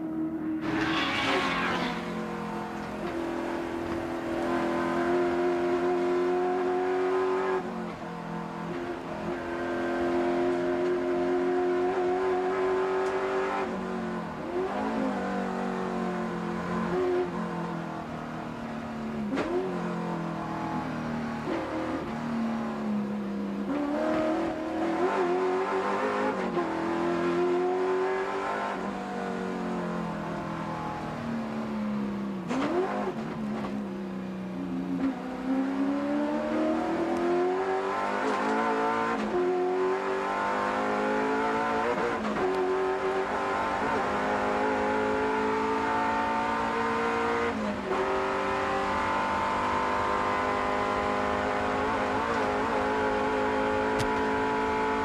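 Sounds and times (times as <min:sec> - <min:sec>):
race car engine revving: 0:34.6 - 0:55.0.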